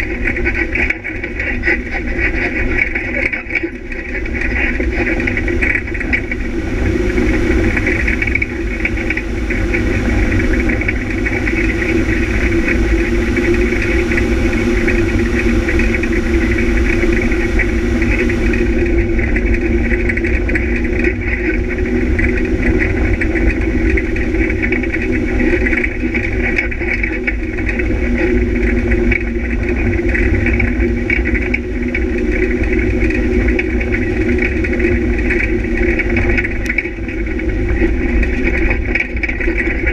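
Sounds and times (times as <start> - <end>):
off-road vehicle engine running: 0.0 - 39.9.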